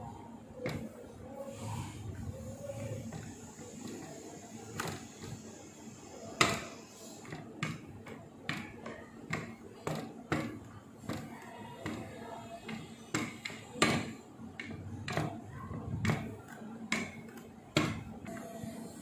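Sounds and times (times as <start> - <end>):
rolling pin knocking on board: 6.4 - 18.2.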